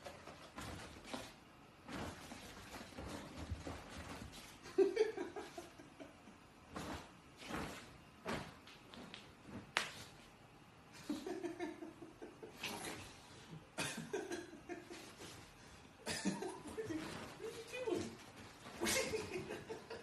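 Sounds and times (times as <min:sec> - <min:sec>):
quiet breathy laughter: 0:04.4 - 0:06.5, 0:10.9 - 0:20.0.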